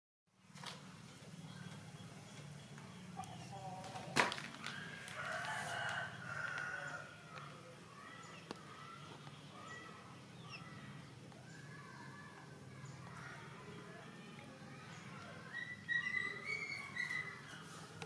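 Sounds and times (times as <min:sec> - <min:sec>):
rooster crowing: 0:04.7 - 0:07.2.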